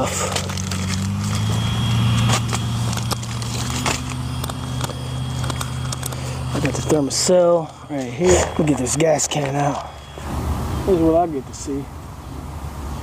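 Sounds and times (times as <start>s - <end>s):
clicks and rustling of gear: 0.0s - 1.6s, 2.3s - 6.8s
engine running: 0.0s - 13.0s.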